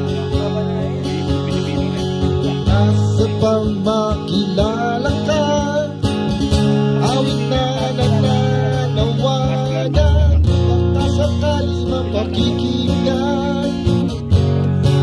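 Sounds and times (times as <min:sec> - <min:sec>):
acoustic guitar strummed: 0:00.0 - 0:15.0.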